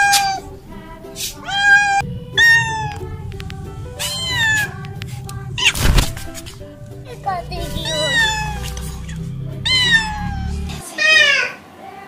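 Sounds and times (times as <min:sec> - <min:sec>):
cat meowing: 0:00.0 - 0:00.5, 0:01.4 - 0:03.2, 0:03.9 - 0:06.4, 0:07.3 - 0:11.6
loud burst of noise: 0:00.0 - 0:10.8.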